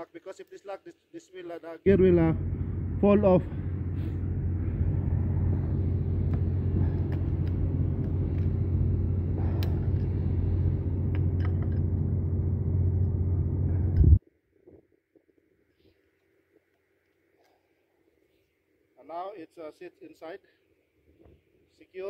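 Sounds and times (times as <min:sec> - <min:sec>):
low mechanical drone: 0:01.9 - 0:14.2.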